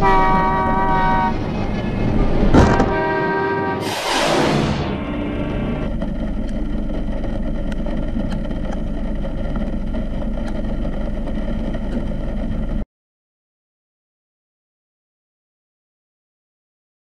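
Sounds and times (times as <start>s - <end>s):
car horn: 0.0s - 1.4s, 2.6s - 3.9s
vehicle road noise: 0.0s - 12.8s
loud rush of noise: 1.2s - 12.8s.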